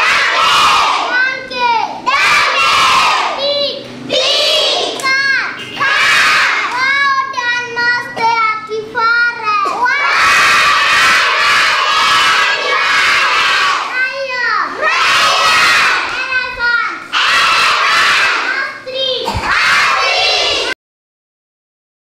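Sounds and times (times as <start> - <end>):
children chanting in chorus: 0.0 - 1.2, 2.0 - 7.7, 9.8 - 20.8.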